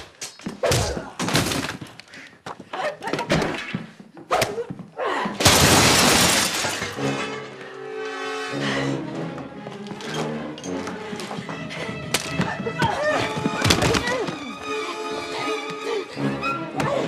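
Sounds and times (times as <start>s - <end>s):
glass table smashing: 5.4s - 7.2s.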